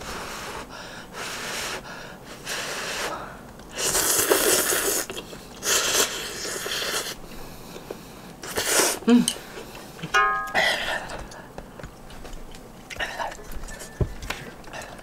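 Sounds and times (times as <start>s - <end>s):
person slurping noodles: 3.8s - 7.2s, 8.4s - 9.1s.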